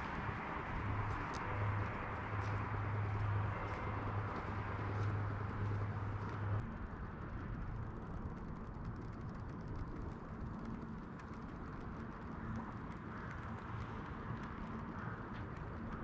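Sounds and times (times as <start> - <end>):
distant traffic: 0.0 - 8.0.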